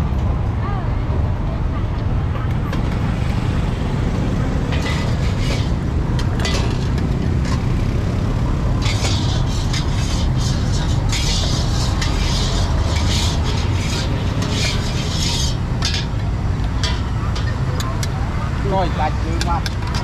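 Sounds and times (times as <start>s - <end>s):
low rumble of road traffic: 0.0s - 20.0s
metal spatula scraping in wok: 4.6s - 7.7s, 8.6s - 17.6s.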